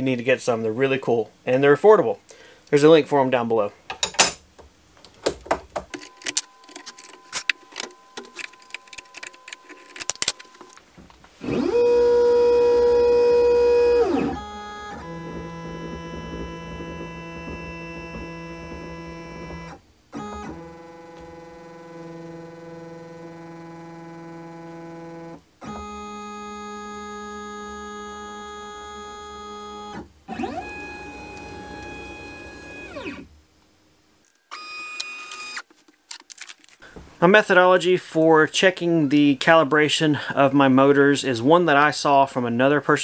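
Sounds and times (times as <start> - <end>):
stepper motors whining: 11.4 - 33.3.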